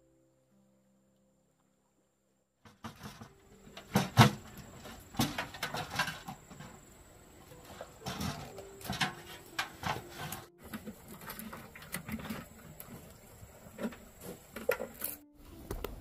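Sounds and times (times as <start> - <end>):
plant strips rustling: 3.3 - 15.3.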